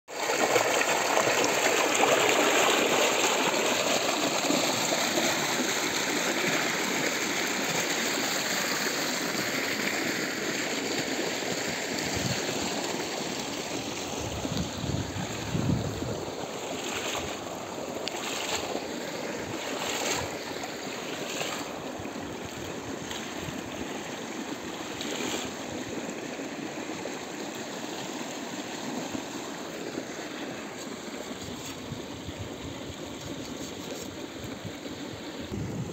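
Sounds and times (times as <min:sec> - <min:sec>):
water gushing into tank: 0:00.1 - 0:08.2.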